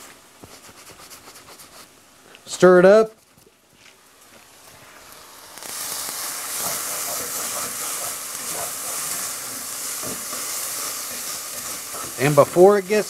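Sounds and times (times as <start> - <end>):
rice sizzling in a pan: 4.0 - 13.0
spatula stirring: 6.4 - 13.0.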